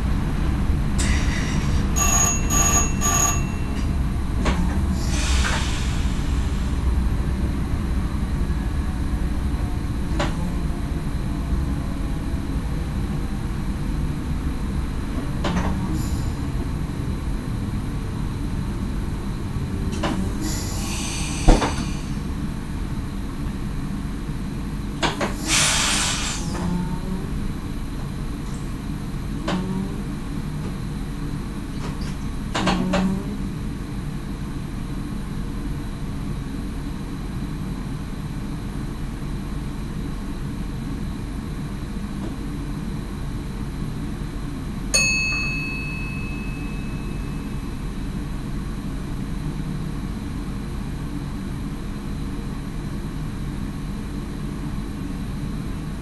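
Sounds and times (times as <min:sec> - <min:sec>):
train cab rumble: 0:00.0 - 0:56.0
bright bell ding: 0:02.0 - 0:03.9, 0:45.0 - 0:47.6.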